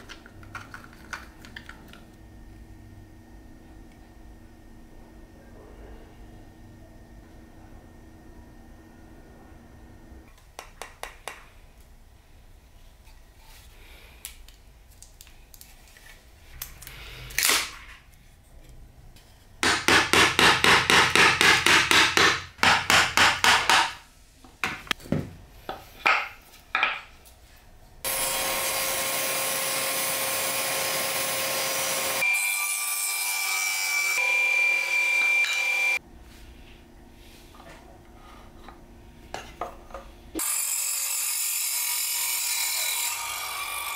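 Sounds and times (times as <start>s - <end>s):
small power tool running: 28.1s - 36.0s.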